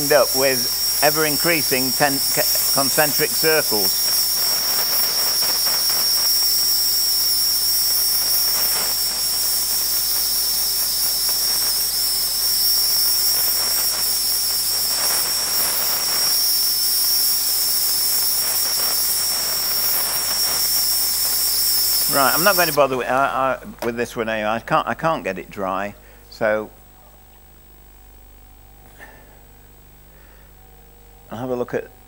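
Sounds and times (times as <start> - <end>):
steam gun hissing and whistling: 0.0 - 23.6.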